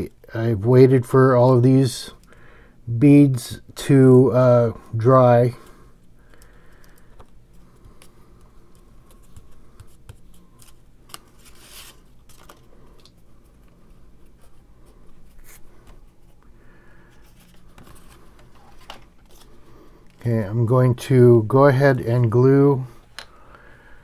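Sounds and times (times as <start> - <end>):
faint low hum: 0.0 - 24.0
paper rustling: 9.1 - 14.6, 17.1 - 20.2.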